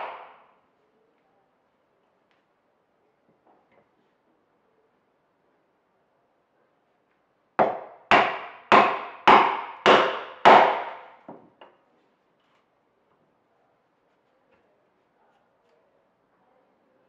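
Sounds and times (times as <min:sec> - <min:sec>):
wooden mallet striking chisel: 0:00.0 - 0:00.4, 0:07.6 - 0:11.7.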